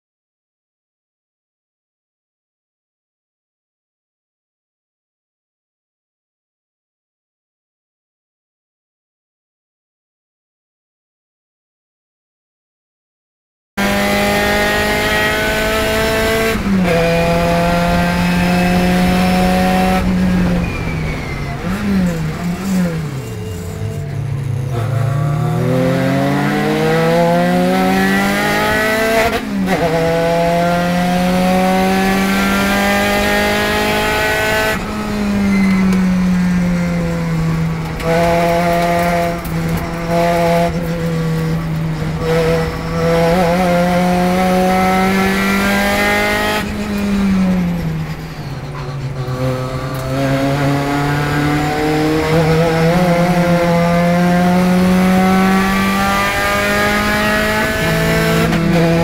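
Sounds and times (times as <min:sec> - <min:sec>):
race car engine revving: 0:13.8 - 0:59.0.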